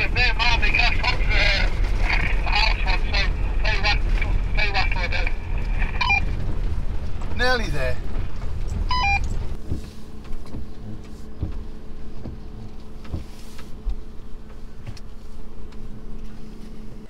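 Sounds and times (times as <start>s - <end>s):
van engine hum: 0.0s - 17.0s
van knocking and rattling: 5.4s - 15.0s
stepped electronic beeps: 5.9s - 6.3s, 8.9s - 9.3s.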